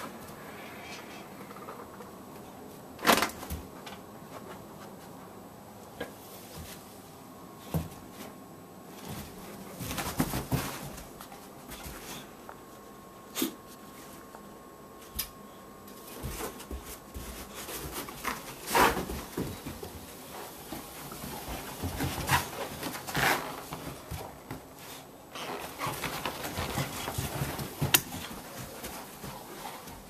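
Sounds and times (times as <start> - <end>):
dog paws thudding on carpet: 7.6 - 12.4, 15.9 - 30.0.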